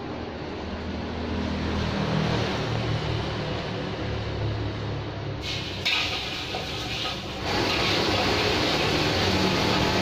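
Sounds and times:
liquid pouring: 5.4s - 10.0s
oil sizzling in a wok: 5.4s - 10.0s.

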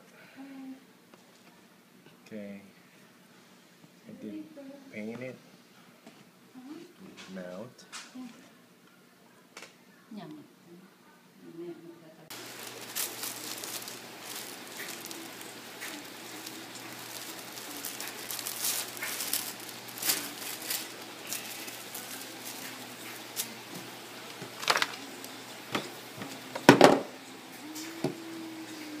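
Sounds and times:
paper rustling and crinkling: 12.3s - 27.0s.

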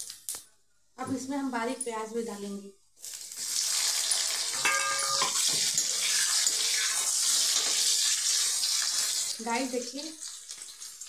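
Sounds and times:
onion sizzling in hot oil: 3.0s - 11.0s.

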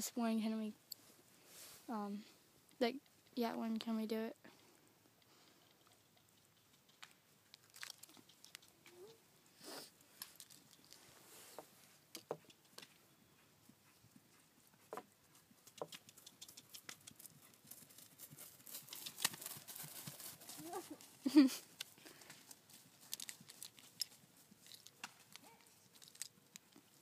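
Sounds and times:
horse hoofbeats on grass: 11.6s - 21.2s.

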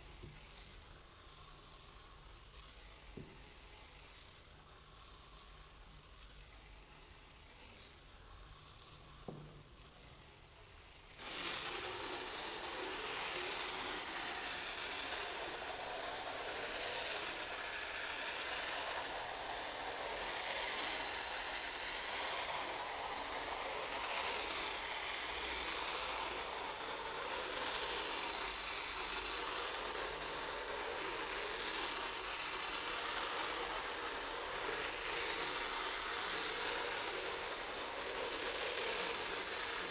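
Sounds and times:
rice grains striking metal sheet: 11.2s - 39.9s.

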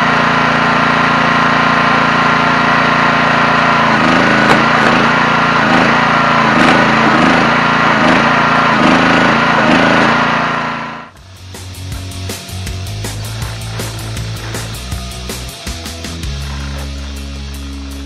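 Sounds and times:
log splitter engine running: 0.0s - 18.0s.

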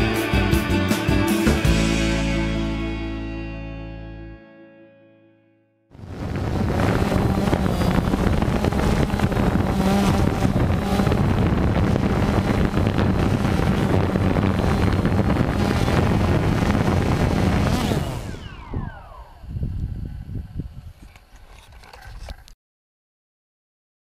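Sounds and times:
drone motors spinning down: 6.0s - 20.4s
drone motors buzzing hum: 6.0s - 22.4s.

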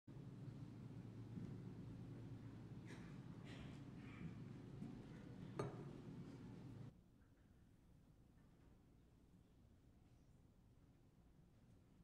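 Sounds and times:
low steady hum: 0.1s - 7.0s.

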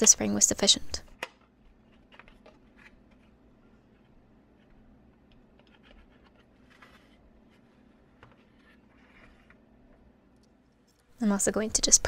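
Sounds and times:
soft scrape: 5.9s - 9.6s.

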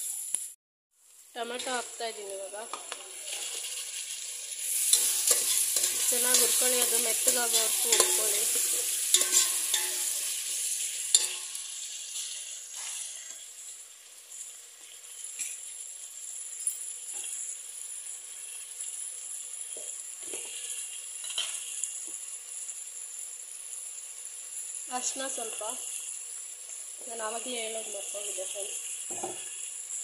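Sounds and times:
vegetables sizzling in oil: 0.0s - 30.0s
spatula stirring in pot: 4.7s - 10.1s.

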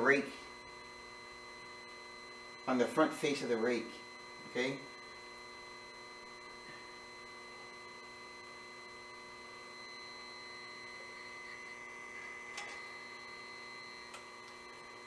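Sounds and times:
electric motor humming: 3.6s - 15.0s.

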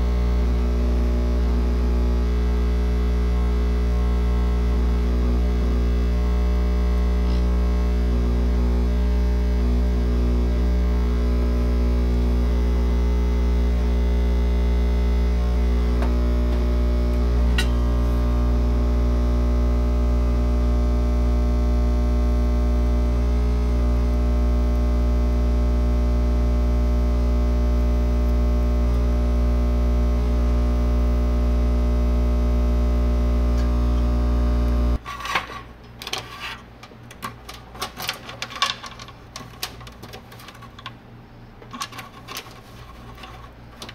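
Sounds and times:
electrical mains hum: 0.0s - 43.9s
hands handling wires: 35.0s - 41.0s, 41.6s - 43.9s.

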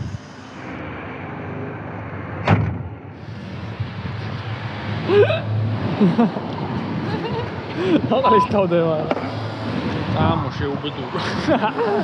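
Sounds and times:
car door slamming: 2.4s - 3.1s.

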